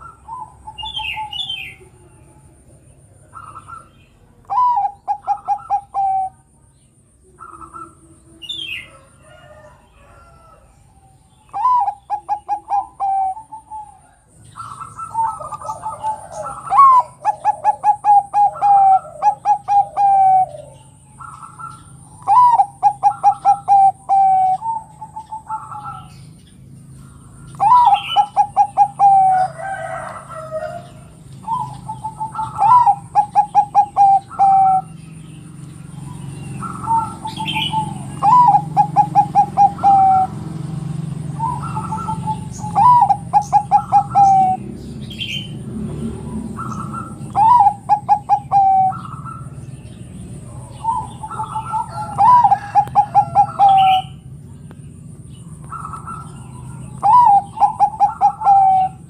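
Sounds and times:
dove cooing: 0.0s - 6.6s, 7.2s - 59.0s.

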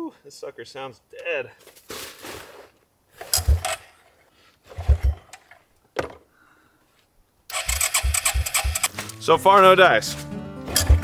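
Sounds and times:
recoil starter pulls: 3.2s - 4.0s, 4.7s - 5.6s, 7.5s - 9.1s, 10.7s - 11.0s
engine chugging without starting: 4.7s - 5.4s, 7.5s - 8.9s.

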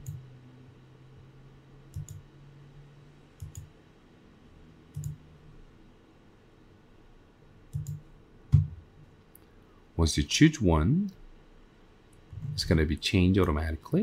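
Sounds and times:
computer mouse clicks: 0.0s - 0.2s, 1.9s - 2.2s, 3.4s - 3.7s, 4.9s - 5.2s, 7.7s - 8.7s.

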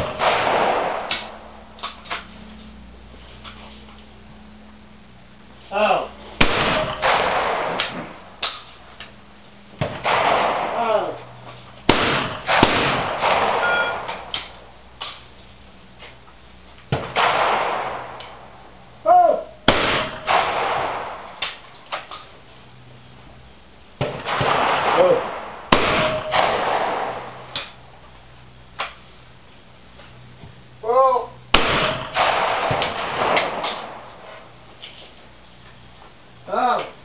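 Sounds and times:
shotgun shots echoing: 0.0s - 2.2s, 6.4s - 8.8s, 9.8s - 11.2s, 11.9s - 15.3s, 17.0s - 18.6s, 19.7s - 21.6s, 24.0s - 27.8s, 31.5s - 34.5s.

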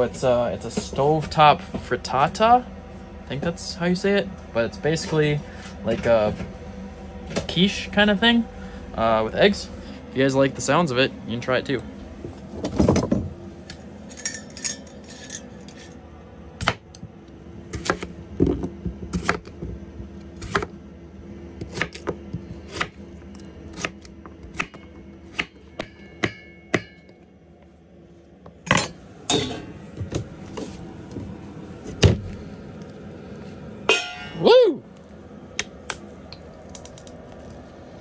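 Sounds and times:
knife chopping on wooden board: 17.8s - 19.5s, 21.6s - 23.0s.

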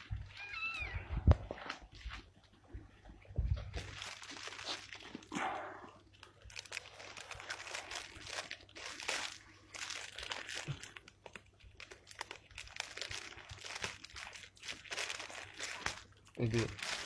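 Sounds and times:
plastic bag crinkling: 3.6s - 17.0s.

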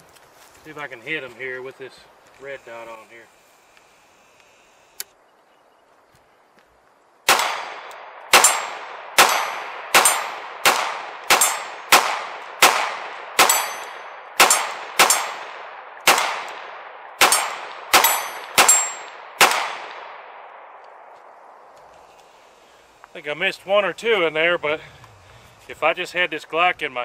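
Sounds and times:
pistol firing: 7.3s - 20.8s
steel plate targets ringing: 8.4s - 10.4s, 11.3s - 11.8s, 13.4s - 15.4s, 17.2s - 19.2s.

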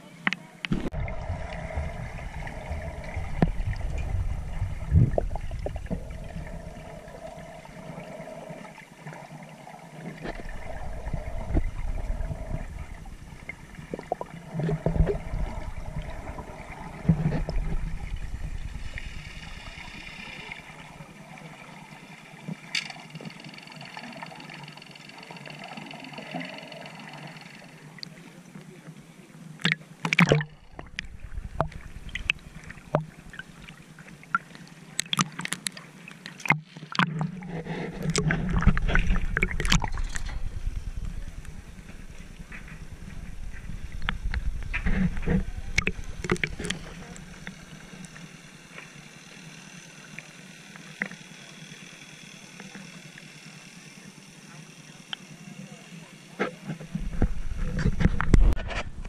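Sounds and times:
water rushing: 0.6s - 28.4s, 29.6s - 51.2s
underwater sloshing and gurgling: 0.6s - 59.0s
splashy clicks: 38.0s - 40.4s, 43.6s - 48.2s.

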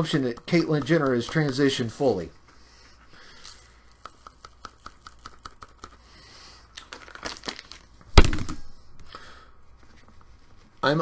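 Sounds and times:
loud thump: 8.2s - 8.7s.

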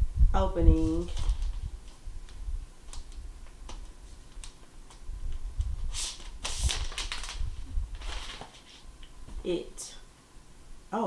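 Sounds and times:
protective sleeve crinkling: 0.7s - 9.1s.

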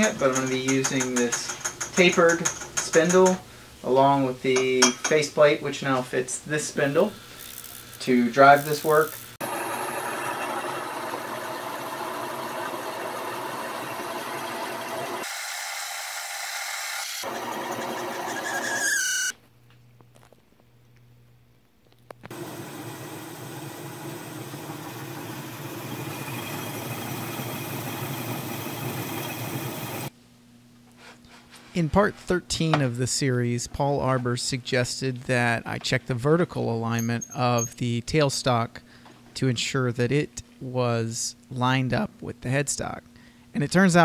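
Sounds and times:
metal lathe running and cutting: 9.4s - 18.8s
lathe squeal: 9.4s - 19.3s.

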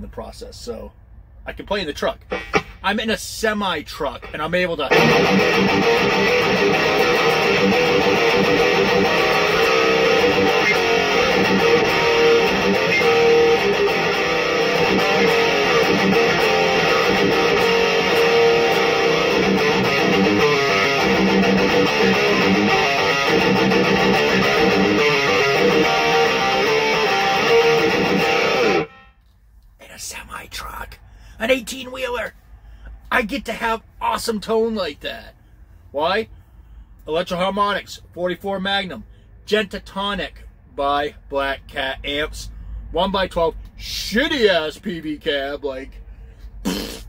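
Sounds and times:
distorted electric guitar riffing: 2.2s - 2.9s, 4.2s - 29.1s.

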